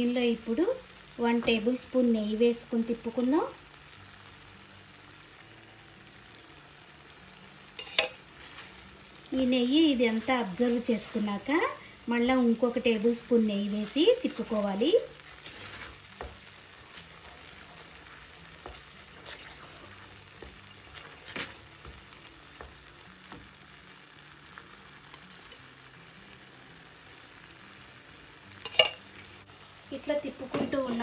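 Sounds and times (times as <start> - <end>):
paste sizzling in a pan: 0.0 - 31.0
wooden spatula scraping and tapping: 15.3 - 23.5.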